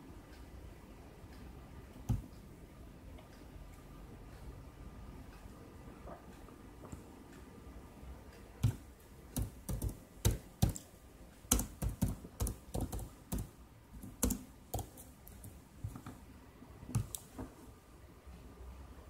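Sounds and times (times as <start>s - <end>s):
sharp irregular clicks and taps: 1.3s - 2.5s, 8.2s - 16.2s, 16.9s - 17.5s.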